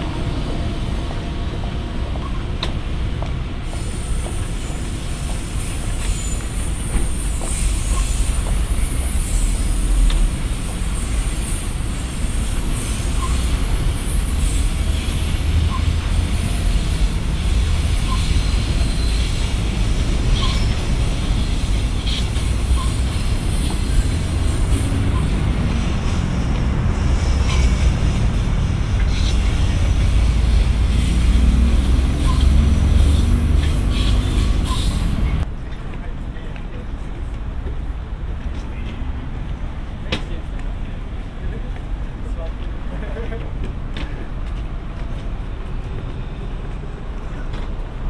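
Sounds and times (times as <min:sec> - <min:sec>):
train wheels rumbling on rail: 0:00.0 - 0:48.0
high-pitched wheel squeal: 0:03.7 - 0:26.4, 0:27.2 - 0:35.4.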